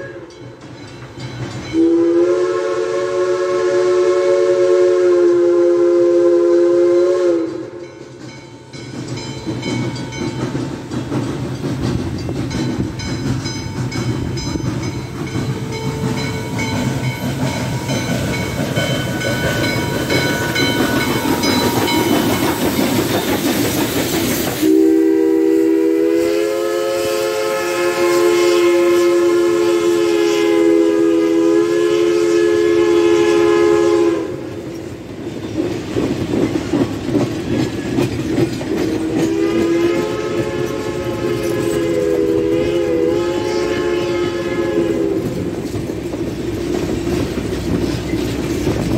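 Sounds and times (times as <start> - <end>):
steam whistle blast: 0.0 - 0.4, 1.7 - 7.9, 24.4 - 34.6, 38.9 - 45.4
clickety-clack of train coaches: 0.0 - 48.9
steam locomotive rumbling: 0.0 - 48.9
bell ringing: 12.2 - 22.4.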